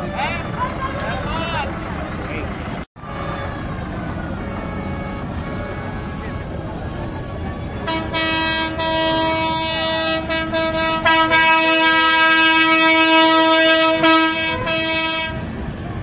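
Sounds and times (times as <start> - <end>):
loud train air horn blast: 4.4 - 6.7, 7.8 - 15.6.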